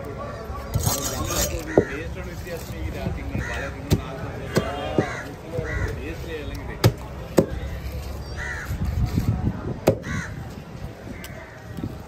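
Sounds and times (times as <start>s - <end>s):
crows cawing: 1.6s - 2.1s, 3.3s - 3.7s, 4.4s - 6.0s, 8.3s - 8.8s, 10.0s - 10.4s.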